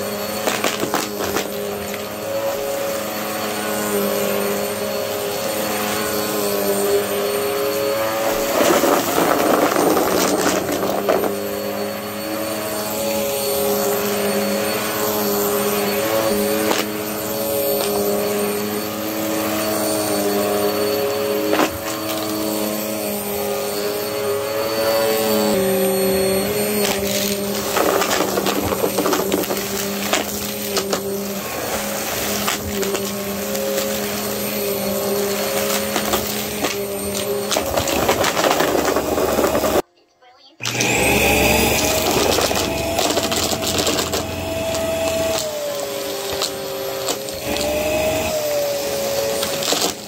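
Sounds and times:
vacuum cleaner running: 0.0 - 50.0.

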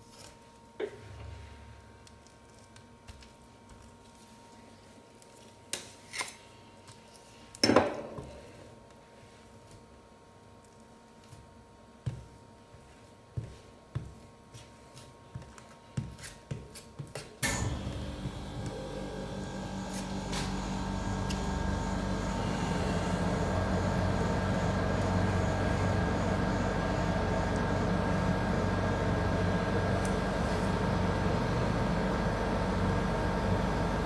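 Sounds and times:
cooling unit mechanical hum: 0.0 - 34.0.

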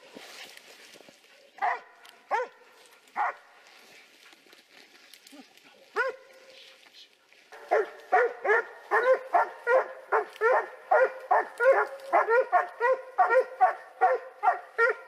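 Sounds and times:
dog barking: 1.6 - 2.6, 3.2 - 3.5, 5.9 - 6.4, 7.5 - 15.0.

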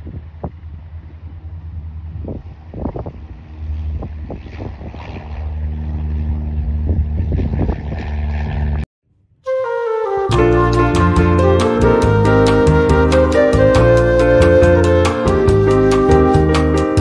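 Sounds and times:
wind buffeting microphone: 0.0 - 8.8
propeller plane engine droning: 0.0 - 8.9.

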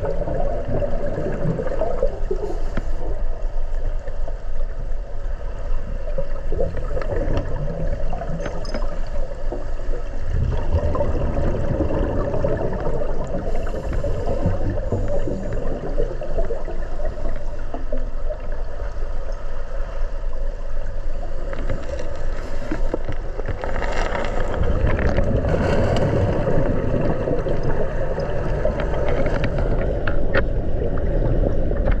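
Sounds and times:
underwater rush of churning water: 0.0 - 32.0
crackling clicks: 6.2 - 9.9, 21.4 - 32.0.

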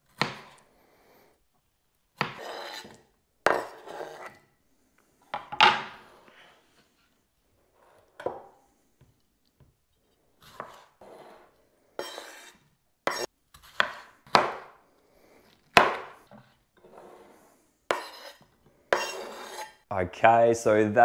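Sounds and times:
knife chopping on wooden board: 0.1 - 0.6, 2.2 - 4.3, 12.0 - 14.8, 15.7 - 16.4, 17.9 - 19.7
knife scraping board: 2.2 - 4.4, 10.4 - 14.4, 15.4 - 19.8.

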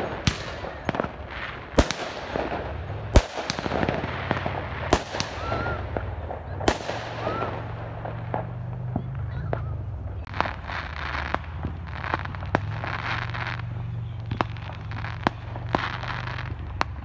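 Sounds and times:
fireworks pops and crackle: 0.0 - 17.0
fireworks sharp bangs: 0.0 - 17.0.

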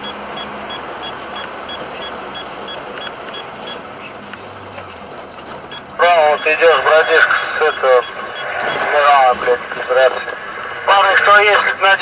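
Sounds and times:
road and engine noise in car: 0.0 - 12.0
short high electronic beeps: 5.7 - 8.9.

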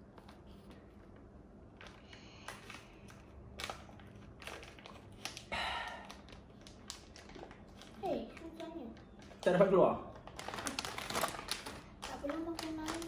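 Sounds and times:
loud plastic crackle: 1.7 - 13.0
plastic packaging crinkling: 1.7 - 13.0.

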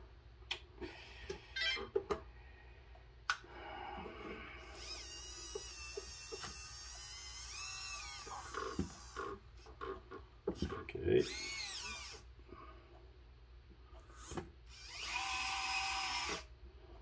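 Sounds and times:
toy loader electric motor whine: 4.7 - 9.4, 11.2 - 12.2, 14.2 - 16.5.

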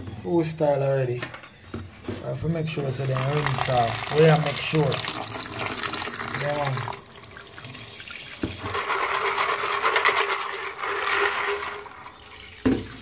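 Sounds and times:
faucet water running: 3.0 - 9.8.

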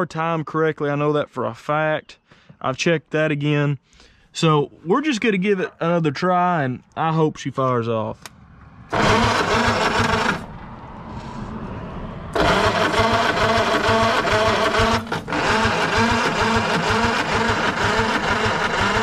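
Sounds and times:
starter motor cranking engine: 8.9 - 10.5, 12.4 - 19.0.

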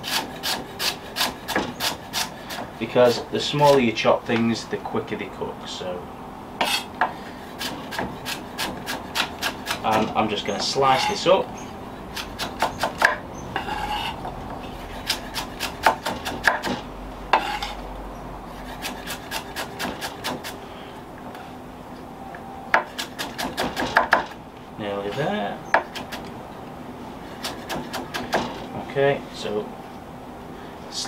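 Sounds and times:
knife chopping on wooden board: 0.1 - 2.7, 6.6 - 10.2, 12.2 - 13.2, 15.0 - 17.7, 18.8 - 20.6, 22.7 - 24.4, 27.4 - 28.6.

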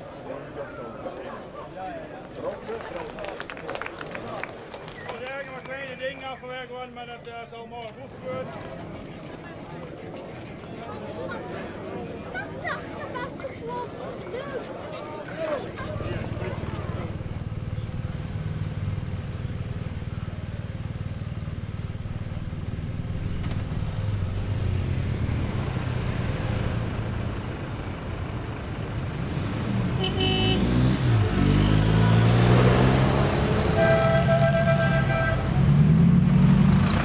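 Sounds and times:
tractor and truck engines: 0.0 - 37.0
vehicle engines running: 0.0 - 37.0
short horn toot: 30.0 - 30.8, 33.6 - 35.5.

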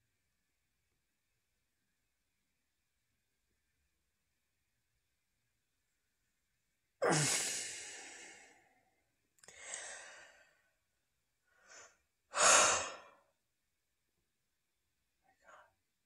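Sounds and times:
man sighing heavily: 7.0 - 8.6.

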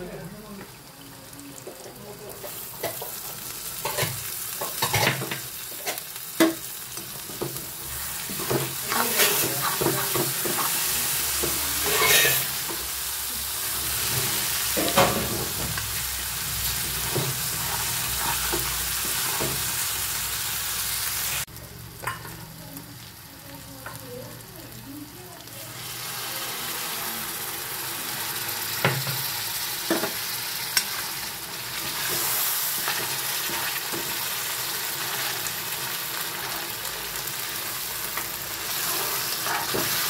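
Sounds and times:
masala sizzling in a pan: 0.0 - 40.0
spatula stirring and scraping: 2.4 - 12.8, 16.6 - 19.9, 31.7 - 36.8, 38.2 - 40.0.

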